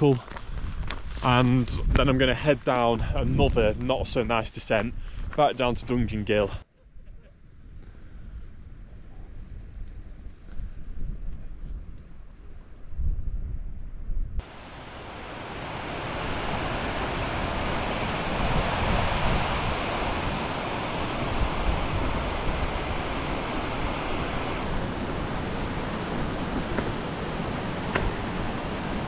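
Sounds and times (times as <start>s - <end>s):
wind buffeting microphone: 0.0s - 29.0s
stream rushing over boulders: 14.4s - 29.0s.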